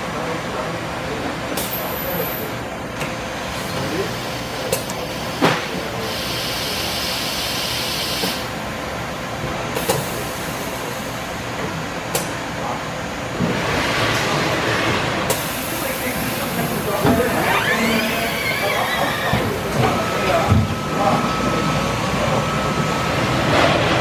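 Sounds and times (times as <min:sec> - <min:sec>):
steady machine hum: 0:15.6 - 0:24.0.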